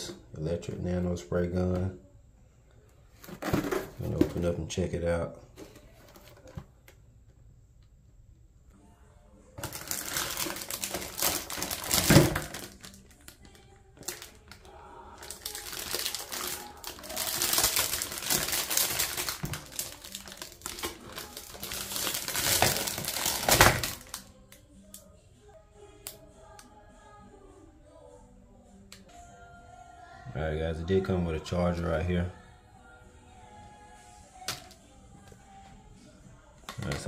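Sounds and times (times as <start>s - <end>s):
plastic wrap crinkling: 9.6s - 24.3s.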